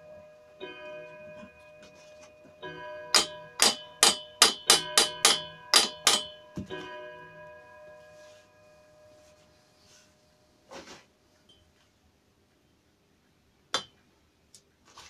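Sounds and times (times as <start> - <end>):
hammer striking metal: 0.0 - 7.6.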